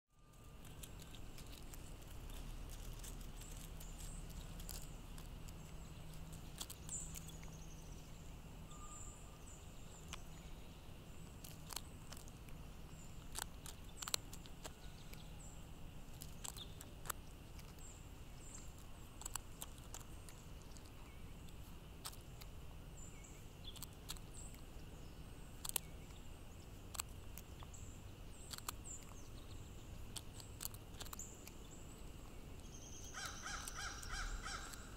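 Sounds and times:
bird pecking on gravel: 0.2 - 34.9
faint high chirps: 3.1 - 12.2.

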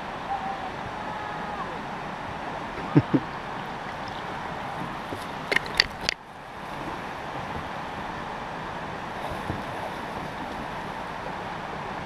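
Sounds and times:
paddle knocking kayak: 2.8 - 11.2
paddle clacking against hull: 3.6 - 6.2.

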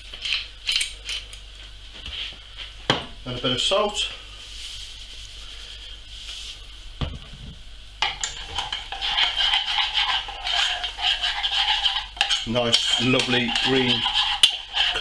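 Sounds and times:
spoon scraping a steel saucepan: 8.0 - 15.0.

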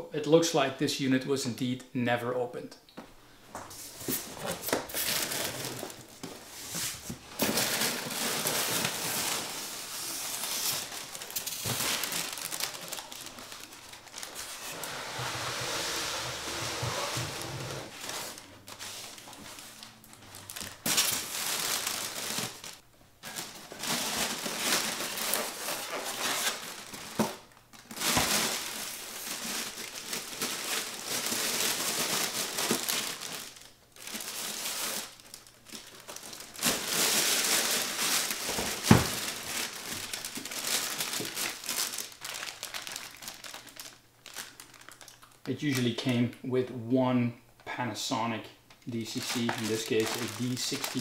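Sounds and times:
plastic packaging crinkling: 4.0 - 14.9, 16.6 - 46.0, 48.7 - 51.0.

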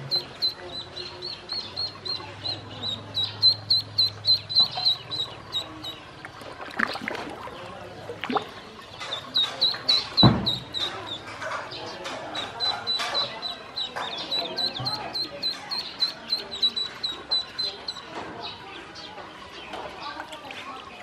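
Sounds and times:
ducklings peeping: 0.0 - 21.0
loud thump: 10.2 - 10.7.

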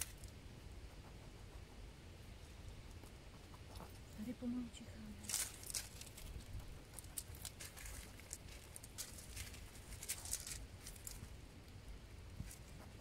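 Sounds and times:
gravel stones clicking: 0.0 - 0.4, 5.2 - 11.8.

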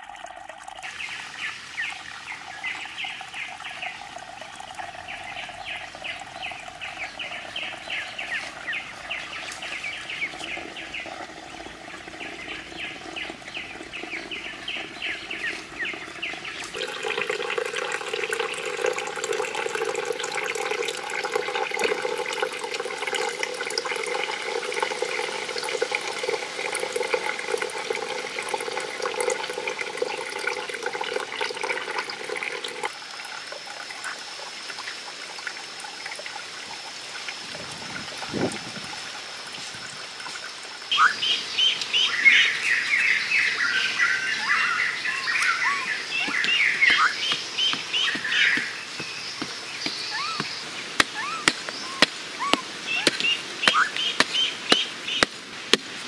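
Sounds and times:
water trickling into stone pond: 0.0 - 56.0
birds chirping: 0.8 - 19.3, 40.9 - 55.4.

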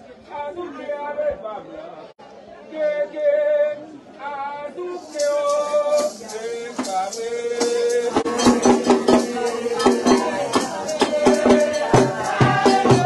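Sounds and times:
voices chanting: 4.6 - 13.0
rattle shaking: 5.0 - 13.0
sharp percussion strikes: 5.0 - 13.0.

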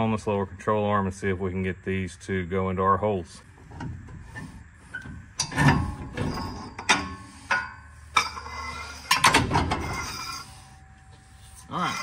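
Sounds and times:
metallic knocks and clanks: 3.6 - 10.2.

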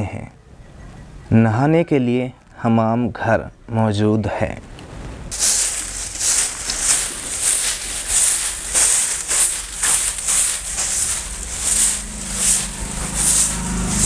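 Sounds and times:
broom sweeping concrete floor: 5.3 - 14.0.

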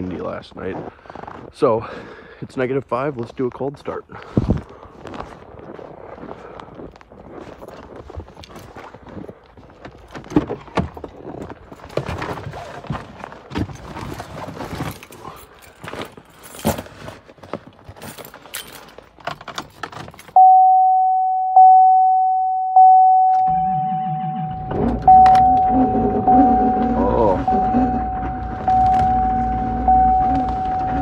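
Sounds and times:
keys jangling: 18.0 - 20.4
truck door chime ringing: 20.4 - 31.0
diesel engine cranking: 23.5 - 31.0.

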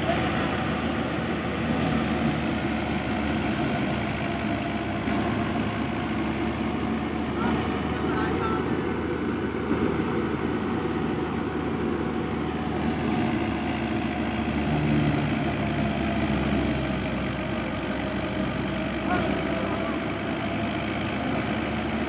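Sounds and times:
threshing machine running: 0.0 - 22.0
tractor engine droning: 0.0 - 22.0.

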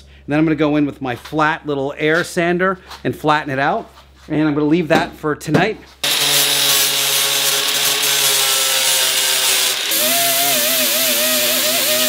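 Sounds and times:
air sander with wobbling pitch: 6.0 - 12.0
angle grinder grinding steel: 6.0 - 12.0.

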